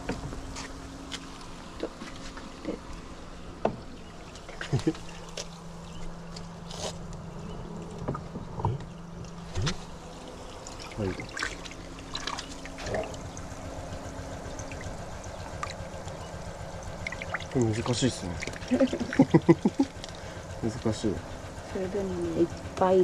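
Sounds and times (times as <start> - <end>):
water trickling and splashing: 0.0 - 21.8
steady low hum: 0.0 - 23.0
small splashes and clicks: 10.4 - 13.6, 14.4 - 20.4.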